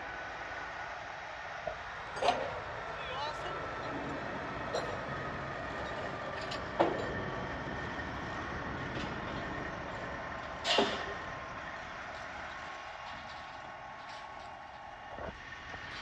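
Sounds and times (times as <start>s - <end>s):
truck engine running: 0.0s - 16.0s
loud sharp knocks: 10.6s - 11.2s.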